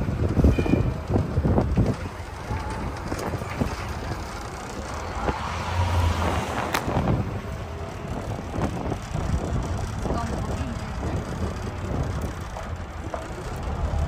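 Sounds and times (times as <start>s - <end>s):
street traffic: 0.0s - 14.0s
wind buffeting microphone: 0.0s - 14.0s.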